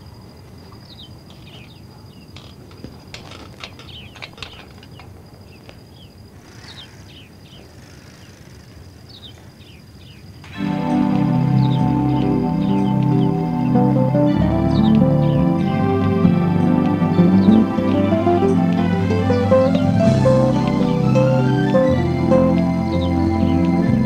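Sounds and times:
insect chirps: 0:00.0 - 0:13.8
insects chirring: 0:00.0 - 0:24.0
bicycle clicks and knocks: 0:02.4 - 0:05.2.

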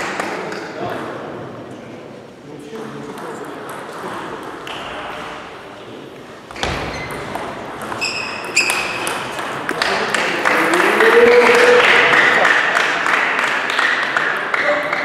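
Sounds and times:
table tennis ball strikes and bounces: 0:06.5 - 0:10.4
person shouting a cheer: 0:10.7 - 0:12.2.

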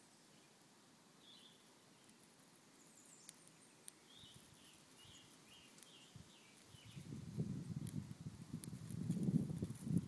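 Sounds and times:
small clicks: 0:03.2 - 0:04.0.

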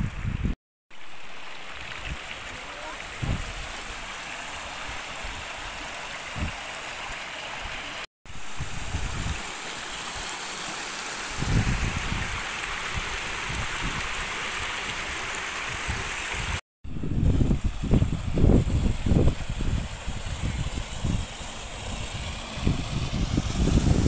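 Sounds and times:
stream rushing over rocks: 0:00.9 - 0:16.6.

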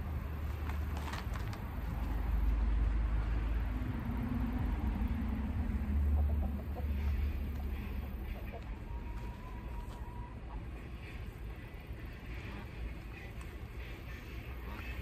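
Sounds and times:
faint drawn-out hum: 0:00.0 - 0:15.0
steady low rumble: 0:00.0 - 0:15.0
chickens clucking: 0:05.4 - 0:15.0.

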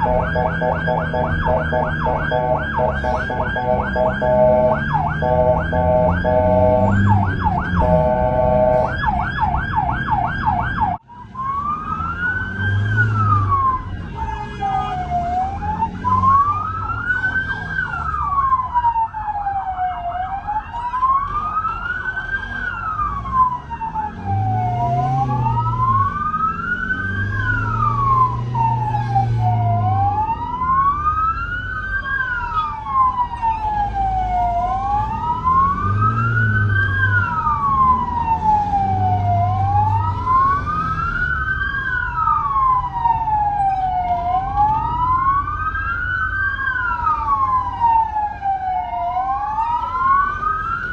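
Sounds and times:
ambulance siren: 0:00.0 - 0:50.9.

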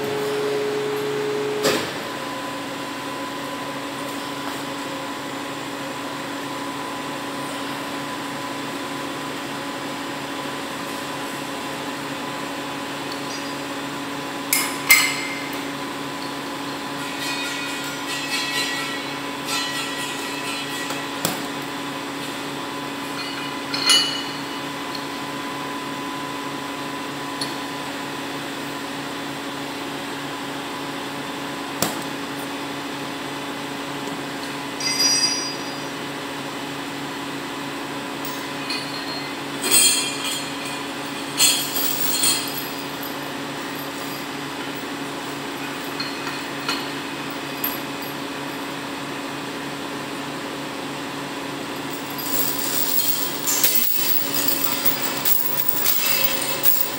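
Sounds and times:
crane chain and hooks clanking: 0:16.9 - 0:21.2, 0:23.1 - 0:24.5, 0:34.8 - 0:35.9, 0:38.2 - 0:48.7, 0:51.8 - 0:56.9.

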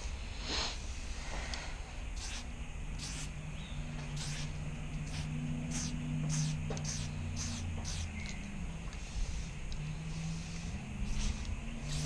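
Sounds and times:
low steady hum: 0:00.0 - 0:12.0
spray paint can hissing: 0:02.1 - 0:08.3, 0:10.4 - 0:12.0.

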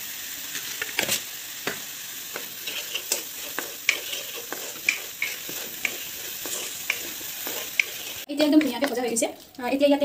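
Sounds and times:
paste sizzling in a pan: 0:00.0 - 0:09.4
wooden spatula scraping a pan: 0:02.3 - 0:09.1.

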